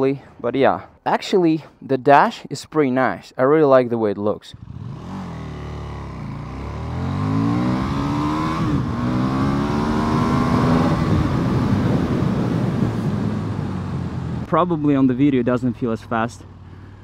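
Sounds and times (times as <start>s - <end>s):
motorcycle engine accelerating: 4.5s - 17.0s.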